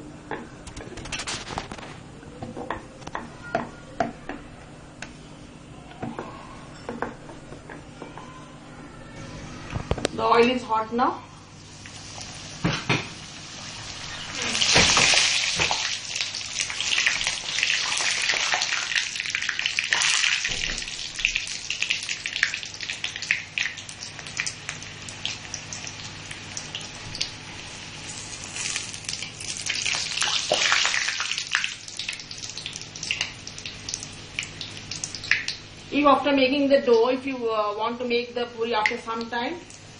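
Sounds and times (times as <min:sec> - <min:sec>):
bread deep-frying in hot oil: 0:11.4 - 0:36.4.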